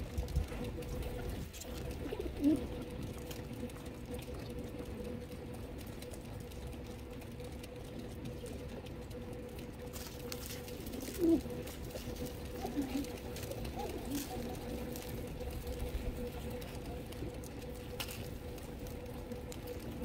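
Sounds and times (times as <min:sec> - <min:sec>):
faint steady hum: 0:00.0 - 0:20.0
pigeon cooing: 0:00.2 - 0:03.9, 0:10.0 - 0:18.2
beaks pecking grain: 0:09.8 - 0:20.0.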